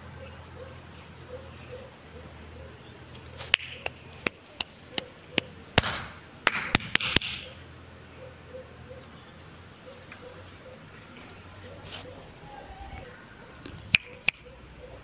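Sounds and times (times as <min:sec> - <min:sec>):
sharp knocks: 0:05.8 - 0:07.4.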